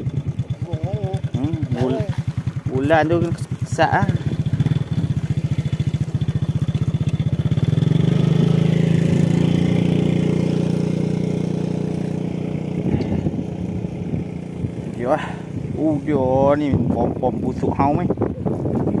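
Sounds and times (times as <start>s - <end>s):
small engine running: 0.0s - 18.9s.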